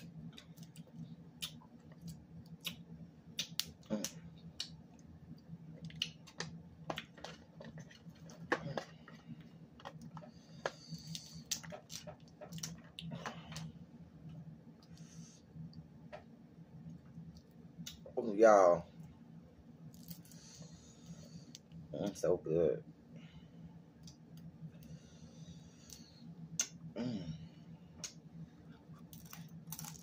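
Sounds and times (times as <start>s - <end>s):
wet eating clicks and smacks: 0.3s - 8.9s
crab shells cracking: 29.1s - 30.0s.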